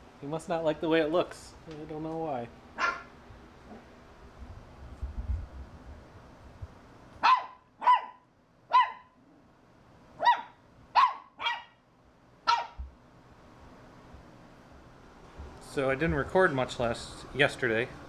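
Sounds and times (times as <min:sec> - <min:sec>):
puppy barking high-pitched: 0:02.8 - 0:03.1, 0:07.2 - 0:09.2, 0:10.2 - 0:11.8, 0:12.4 - 0:12.9.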